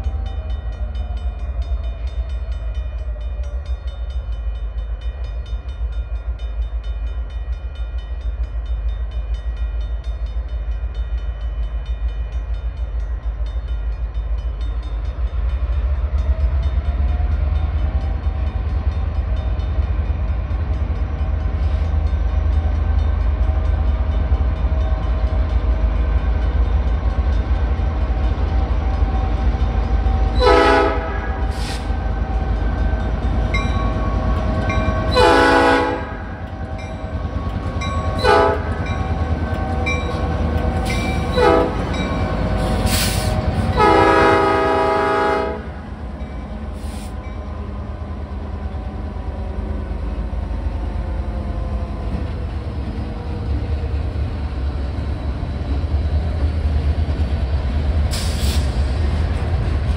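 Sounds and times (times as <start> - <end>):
freight train rumbling: 0.0 - 59.9
locomotive air horn blasts: 30.4 - 31.8, 35.1 - 36.3, 38.2 - 38.8, 41.3 - 42.0, 42.6 - 45.8.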